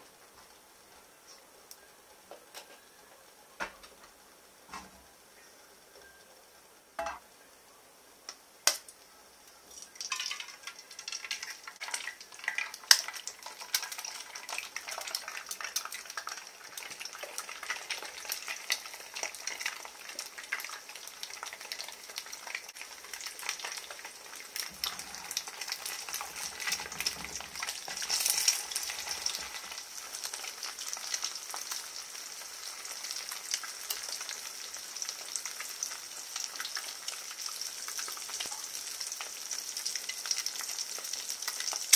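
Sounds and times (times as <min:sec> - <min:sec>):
eggs sizzling in a frying pan: 0:00.0 - 0:41.9.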